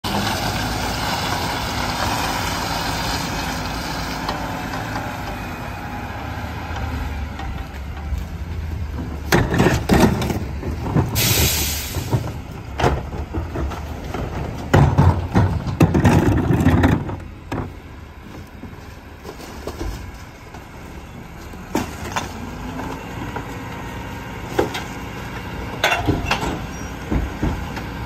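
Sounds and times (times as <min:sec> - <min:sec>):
garbage truck diesel engine: 0:00.0 - 0:28.0
clunks of plastic trash carts: 0:09.0 - 0:17.8
air brake hiss: 0:11.2 - 0:12.1.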